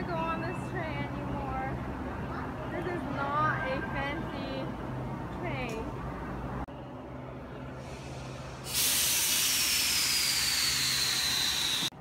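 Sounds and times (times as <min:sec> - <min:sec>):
compressed air hissing: 0:07.8 - 0:11.9
faint falling whistle: 0:09.4 - 0:11.9.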